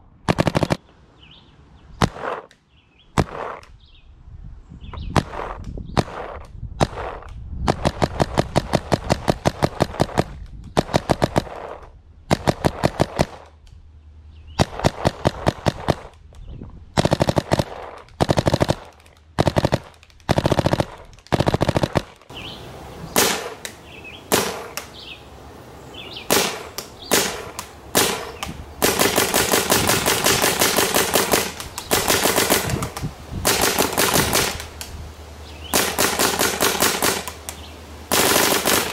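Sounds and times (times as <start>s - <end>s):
paintball marker firing: 3.2s - 3.8s, 5.1s - 13.6s, 14.6s - 16.2s, 17.0s - 22.3s, 23.2s - 25.0s, 26.3s - 35.0s, 35.7s - 38.9s.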